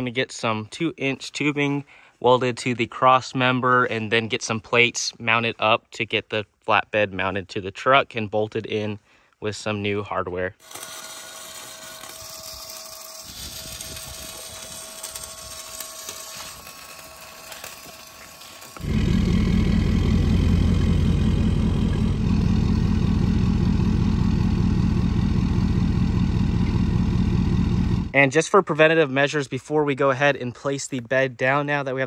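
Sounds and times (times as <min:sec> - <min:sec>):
welding crackling and hissing: 0:10.6 - 0:21.2
diesel engine idling: 0:18.8 - 0:28.1.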